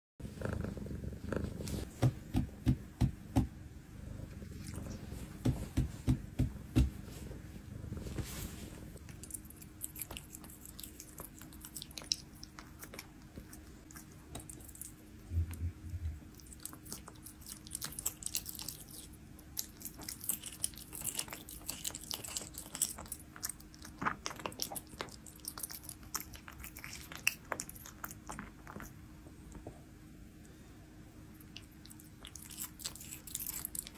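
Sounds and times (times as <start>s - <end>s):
cat chewing raw meat: 4.0s - 6.8s, 9.0s - 29.0s, 31.4s - 33.9s.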